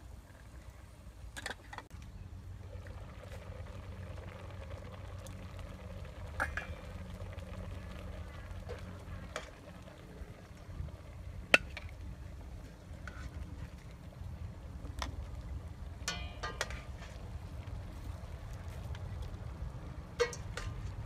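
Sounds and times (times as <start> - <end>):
low rumble: 2.0 - 16.1.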